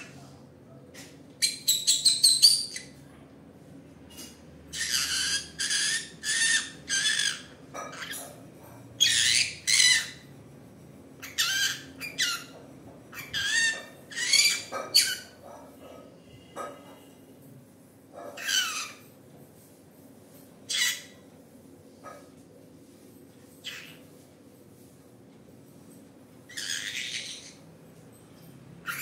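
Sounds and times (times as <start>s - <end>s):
parrot calling harshly: 4.7s - 8.2s, 9.0s - 10.2s, 11.2s - 12.5s, 13.1s - 15.4s, 18.4s - 19.0s, 20.7s - 21.2s, 26.5s - 27.6s.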